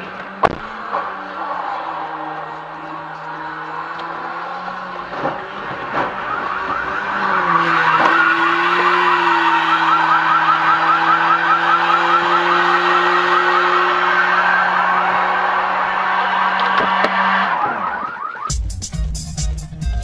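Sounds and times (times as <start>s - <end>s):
car driving drone: 0.0s - 18.5s
fast warbling siren: 3.7s - 18.5s.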